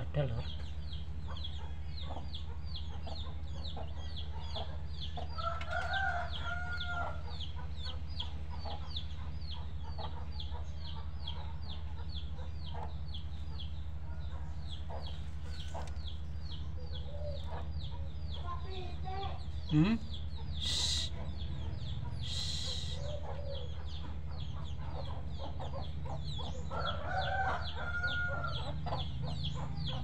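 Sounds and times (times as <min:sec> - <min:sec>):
chicks peeping: 0:00.0 - 0:30.0
rooster crowing: 0:05.4 - 0:07.2, 0:26.7 - 0:28.8.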